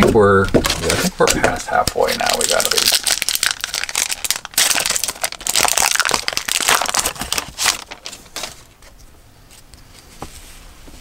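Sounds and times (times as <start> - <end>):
wrapper crinkling: 0.6 - 8.8.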